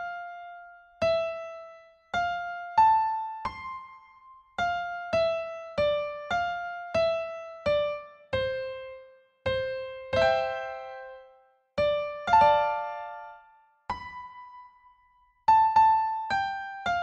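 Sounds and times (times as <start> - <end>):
slow electric piano melody: 0.0 - 14.8, 15.5 - 17.0.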